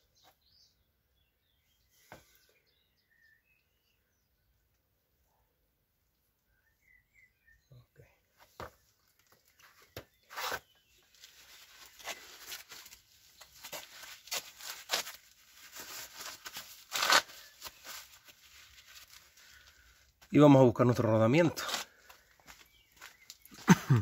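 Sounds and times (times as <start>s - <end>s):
bird chirping: 0.0s - 4.8s, 6.1s - 8.3s, 22.2s - 24.0s
rustling and clicks of handling gear: 8.4s - 20.3s, 21.6s - 23.9s.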